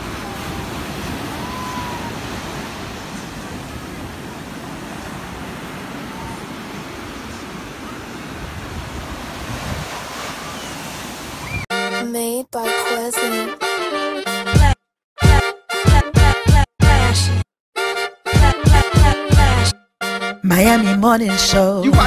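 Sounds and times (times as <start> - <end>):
ocean surf on sand: 0.0 - 11.7
music: 11.7 - 22.0.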